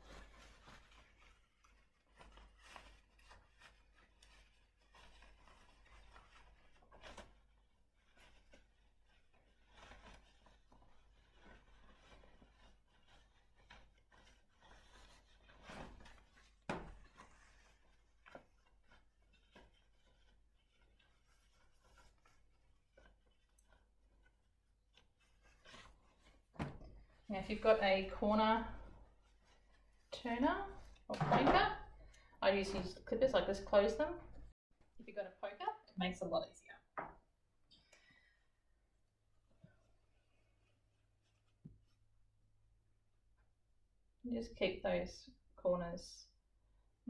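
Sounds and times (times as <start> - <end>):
fabric rustling: 0.0 - 31.1.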